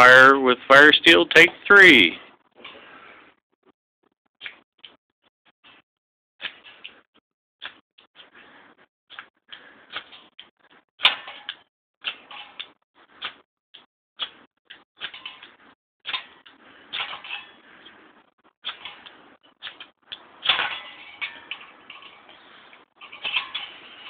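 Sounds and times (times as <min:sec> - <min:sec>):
striker scraping fire steel: 0:09.1 - 0:13.4, 0:14.2 - 0:24.0.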